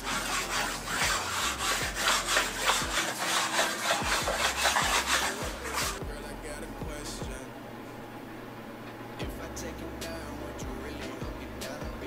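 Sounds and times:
tool scraping along metal track: 0.0s - 6.0s.

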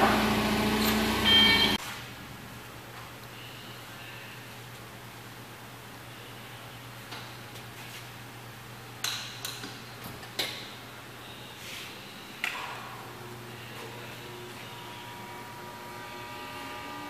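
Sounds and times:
steady low hum: 10.7s - 17.0s.

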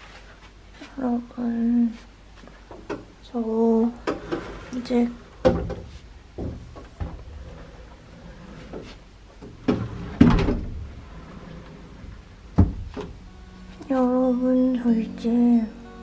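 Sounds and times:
cupboard door knocks and thumps: 5.4s - 7.3s, 12.6s - 13.2s.

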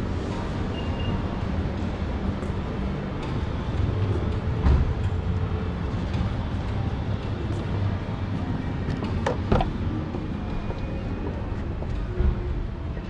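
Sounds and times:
car door latch clicks: 8.9s - 9.8s.

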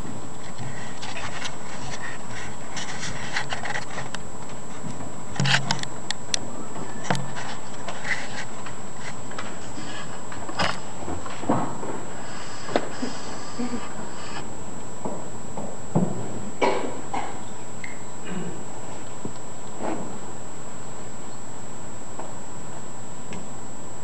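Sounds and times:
room noise hiss: 0.0s - 24.0s
paper rustling: 0.4s - 5.8s, 7.0s - 12.0s
dull thumps: 15.0s - 17.3s.

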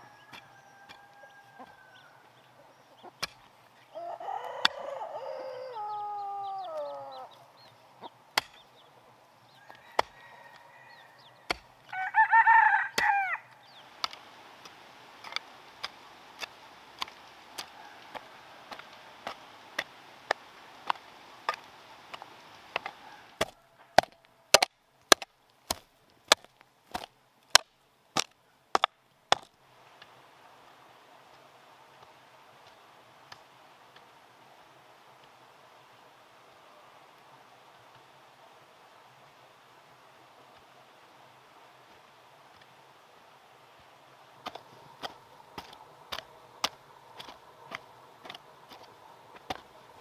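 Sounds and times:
rooster crowing: 0.0s - 2.3s, 3.9s - 7.3s, 9.6s - 13.5s, 17.6s - 19.1s, 22.8s - 24.5s
hoe chopping dry soil: 3.1s - 3.6s, 8.3s - 8.8s, 9.8s - 10.2s, 11.4s - 12.0s, 14.0s - 29.6s, 44.4s - 50.0s.

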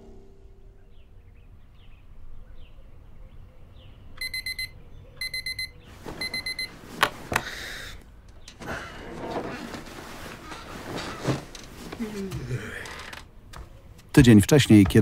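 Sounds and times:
digital alarm clock beeping: 4.2s - 6.7s
rustling: 5.9s - 7.5s, 8.3s - 14.1s.

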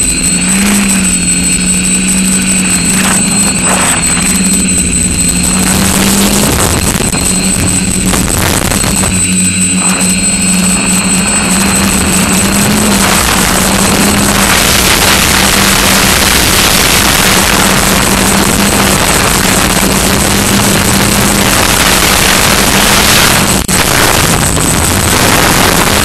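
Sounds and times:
drone motors and propellers humming: 0.0s - 26.0s
wind rushing on microphone: 5.4s - 26.0s.

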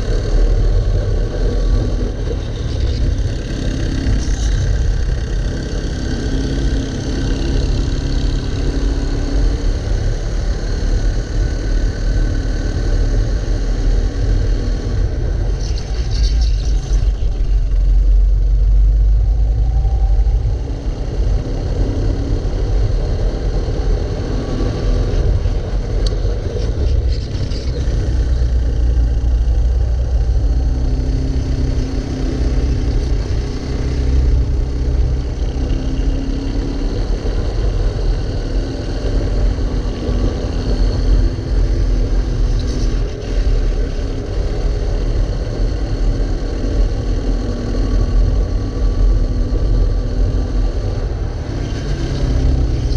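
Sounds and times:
heavy low rumble: 0.0s - 7.3s, 14.0s - 35.6s.

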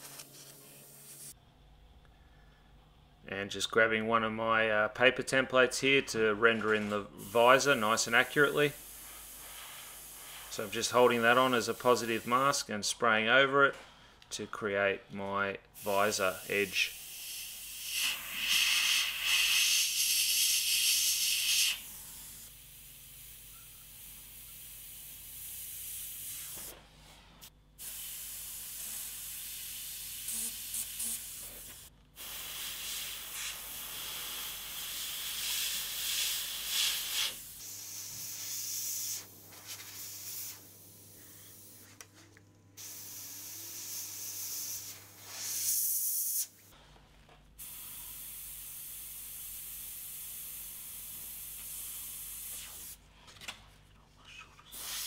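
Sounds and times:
airbrush spraying in hissing bursts: 0.0s - 1.4s, 7.2s - 12.6s, 15.8s - 26.8s, 27.4s - 42.0s, 42.8s - 46.8s, 47.6s - 53.0s, 54.7s - 55.0s.

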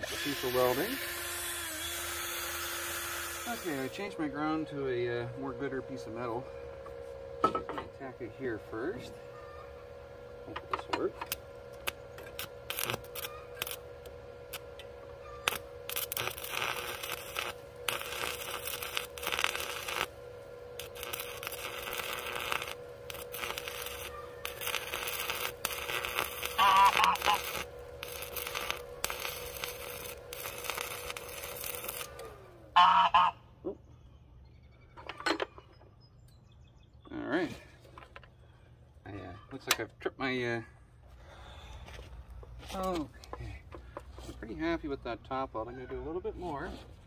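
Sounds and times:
welding arc crackling: 0.0s - 6.3s, 10.4s - 33.3s
welder whine: 0.0s - 35.8s
honking calls: 23.5s - 27.8s, 32.7s - 33.7s.

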